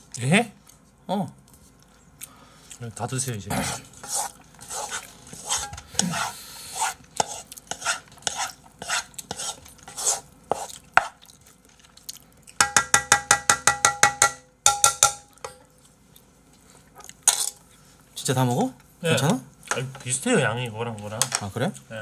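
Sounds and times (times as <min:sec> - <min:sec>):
spatula scraping a frying pan: 0:03.6 - 0:11.2
ringing taps on a pan: 0:12.6 - 0:15.6.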